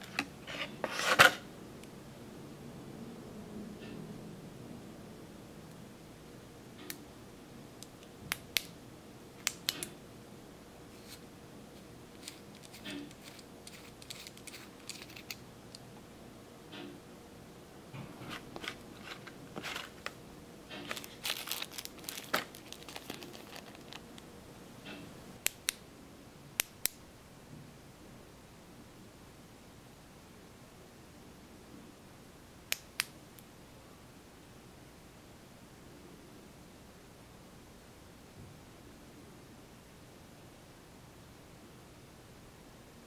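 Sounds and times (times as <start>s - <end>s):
light metal scraping: 0.0s - 1.4s, 18.1s - 21.2s.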